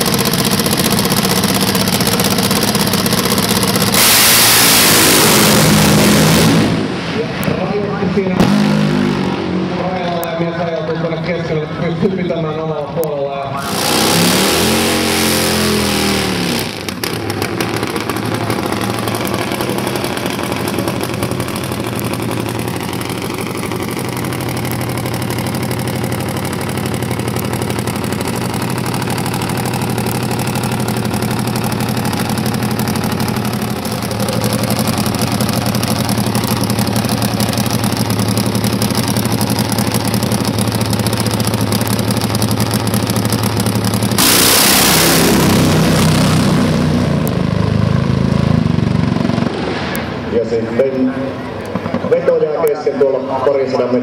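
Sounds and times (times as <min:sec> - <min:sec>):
engine burnout revs: 0:00.0 - 0:07.5, 0:08.2 - 0:10.0, 0:13.5 - 0:52.2
drag bike engine idling roughly: 0:00.0 - 0:54.0.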